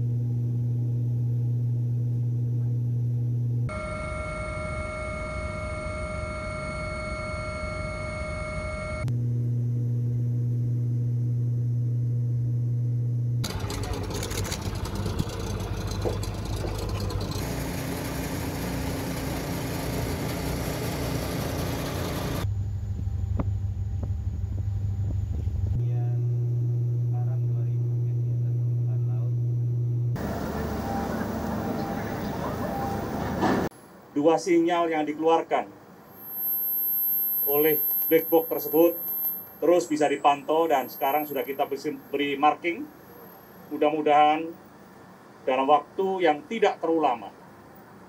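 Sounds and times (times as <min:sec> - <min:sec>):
low engine hum: 0:09.1 - 0:33.7
boat engines: 0:13.4 - 0:22.5, 0:30.2 - 0:33.7, 0:37.5 - 0:44.0
helicopter engine whine: 0:13.4 - 0:22.5, 0:30.2 - 0:33.7
rotor noise: 0:13.4 - 0:22.5, 0:30.0 - 0:33.7.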